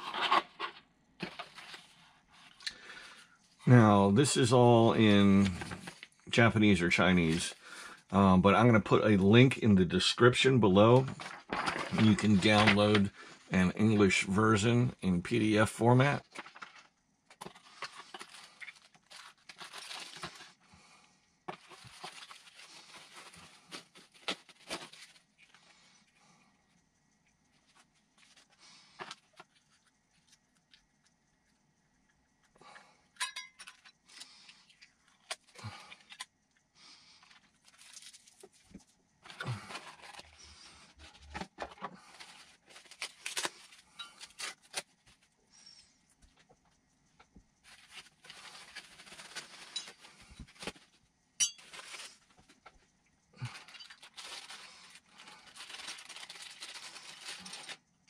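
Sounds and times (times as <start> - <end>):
plastic packaging crinkling: 10.1 - 13.2, 15.2 - 20.6, 21.5 - 25.9, 37.2 - 45.3, 47.6 - 52.8, 53.4 - 57.9.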